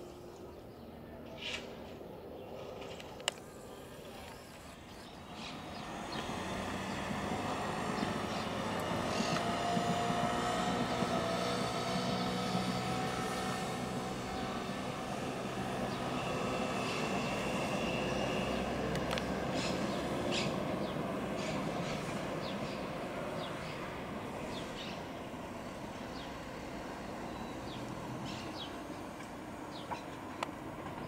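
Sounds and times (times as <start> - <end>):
jet airliner passing overhead: 0.0 - 31.0.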